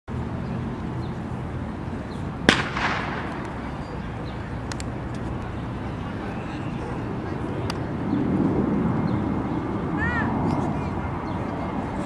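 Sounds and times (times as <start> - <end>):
steady background noise: 0.1 - 12.0
starter's pistol crack: 2.5 - 3.7.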